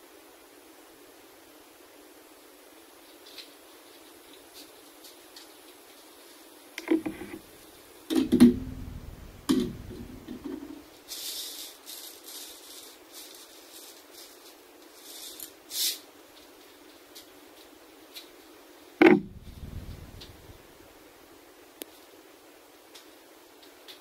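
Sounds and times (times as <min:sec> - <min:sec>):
popcorn kernels rattling: 0:08.2 - 0:16.0.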